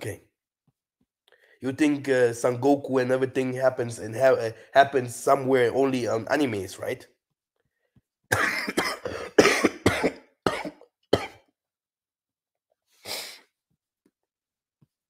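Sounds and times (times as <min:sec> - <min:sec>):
man coughing: 0:08.3 - 0:11.5.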